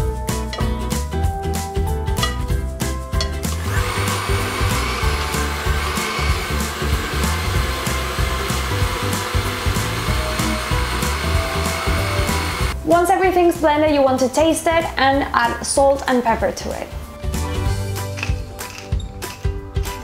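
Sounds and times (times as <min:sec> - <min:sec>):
blender running: 0:03.5 - 0:12.8.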